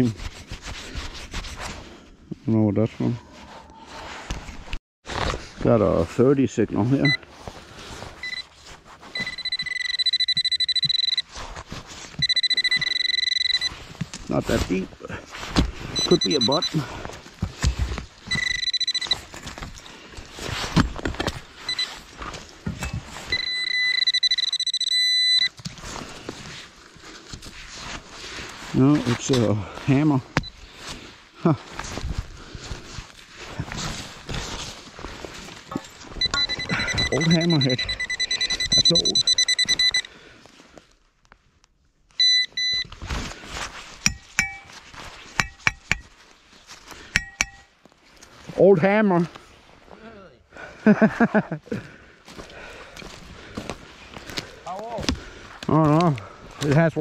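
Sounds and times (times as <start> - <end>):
short electronic beeps: 8.2 - 8.5, 9.1 - 11.3, 12.2 - 13.8, 16.0 - 16.8, 18.3 - 19.2, 21.7 - 21.9, 23.3 - 25.6, 36.2 - 40.1, 42.2 - 42.9, 44.1 - 44.7
pinpointer rapidly pulsing tone: 9.2 - 11.2, 12.2 - 13.7, 36.2 - 40.1, 47.2 - 47.7
digging in soil: 25.5 - 38.0
sharp metallic clinks: 44.0 - 44.8, 47.2 - 47.7.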